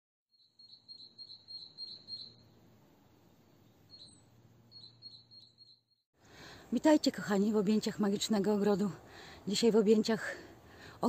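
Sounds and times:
insect chirping: 0.3 - 2.6, 3.9 - 6.0.

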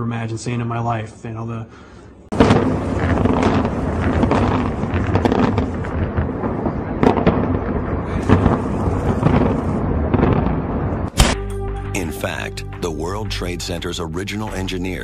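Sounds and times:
building collapse rumble: 2.3 - 11.1
demolition charges banging: 2.3 - 11.4.

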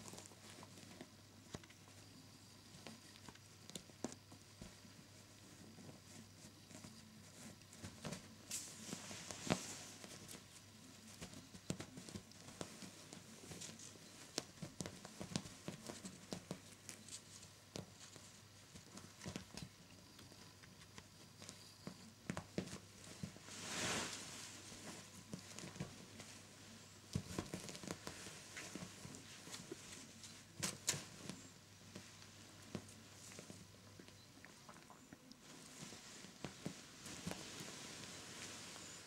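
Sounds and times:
paws tapping on fabric: 2.7 - 23.4, 24.7 - 26.5, 27.1 - 34.2.

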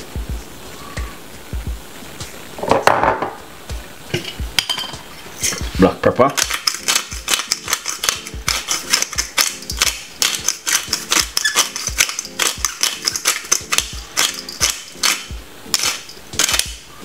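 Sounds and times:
background music with steady beat: 0.0 - 17.0
pepper mill grinding: 6.3 - 16.8.

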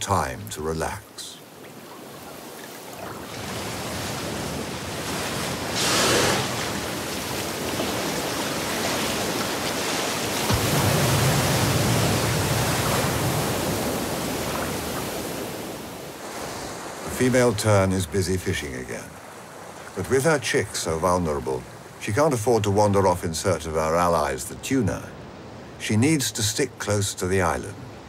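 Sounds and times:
ocean waves and surf: 0.0 - 28.0
rush of water: 0.0 - 28.0
heavy low splash: 10.3 - 13.9.

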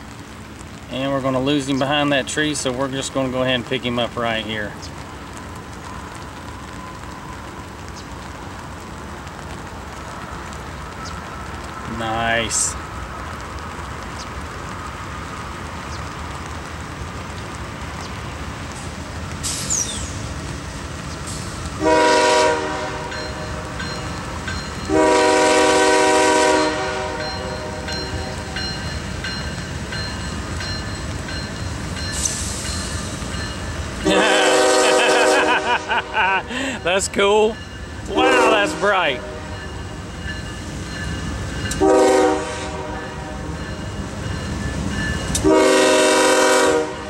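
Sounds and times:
train rumbling: 0.0 - 47.0
locomotive air horn blasts: 21.8 - 23.3, 24.9 - 27.9, 34.0 - 35.9, 38.1 - 39.6, 41.8 - 43.4, 45.4 - 47.0.

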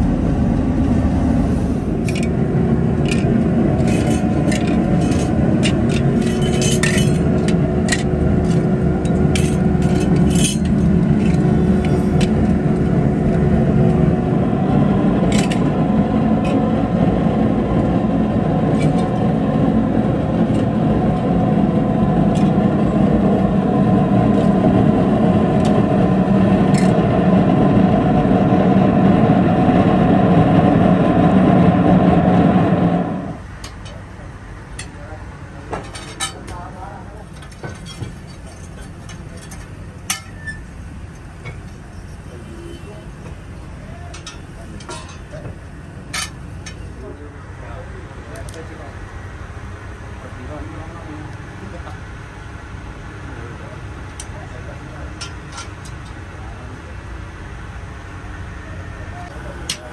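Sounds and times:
furnace blower rumble: 0.0 - 59.9
scrap metal clinking: 3.8 - 12.2.

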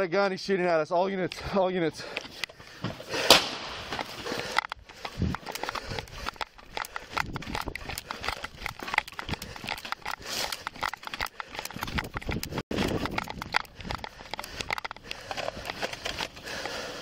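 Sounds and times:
hurried footsteps on pavement: 1.4 - 17.0
camera knocking against clothing: 3.9 - 16.2.

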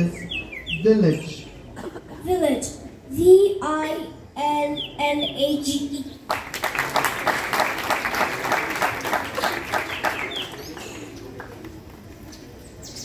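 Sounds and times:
audience applauding: 6.3 - 11.8.

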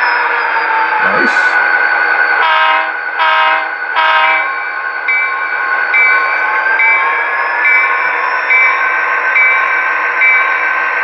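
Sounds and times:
locomotive horn blasts: 2.4 - 4.5.

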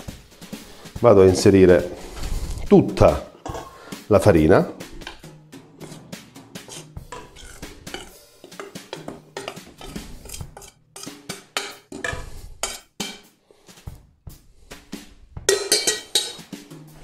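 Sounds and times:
soft background music: 0.0 - 17.0
flour scraping in bowl: 5.8 - 11.1
metal clinks on steel bowl: 15.5 - 16.5.

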